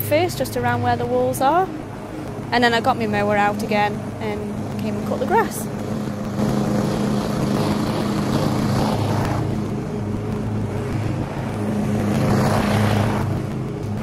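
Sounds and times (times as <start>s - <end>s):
lawn mower engine running: 3.7s - 14.0s.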